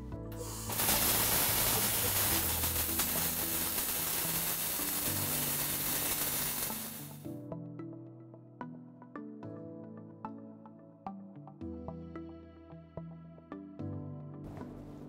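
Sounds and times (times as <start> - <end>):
welding arc crackling and hissing: 0.4 - 7.2.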